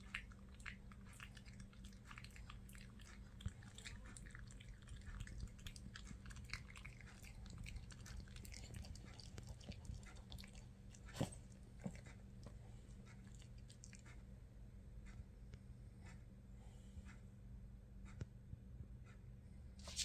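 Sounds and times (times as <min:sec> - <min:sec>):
dog chewing: 0:00.0 - 0:14.2.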